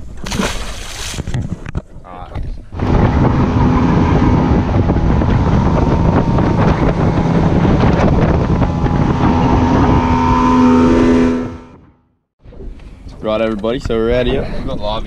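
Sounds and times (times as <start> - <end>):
wind buffeting microphone: 0.0 - 15.0
outboard motor running: 2.4 - 12.1.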